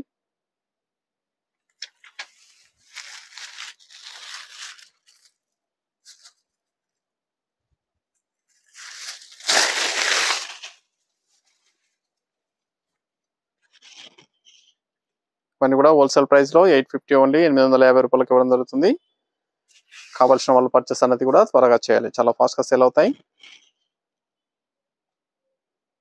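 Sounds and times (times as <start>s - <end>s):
cloth and paper crinkling: 1.8s - 7.0s, 8.3s - 12.2s
cloth swishing: 8.6s - 10.7s.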